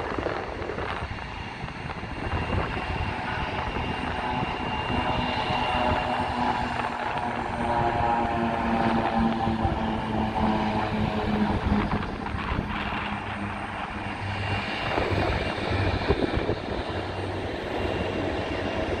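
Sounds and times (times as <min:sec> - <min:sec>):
turboprop plane taking off: 0:00.0 - 0:19.0.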